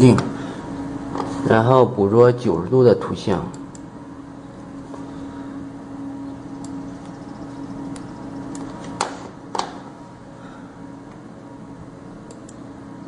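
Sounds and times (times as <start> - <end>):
machine humming: 0.0 - 13.0
sharp clicks: 6.6 - 7.2, 7.9 - 9.2, 12.2 - 12.6.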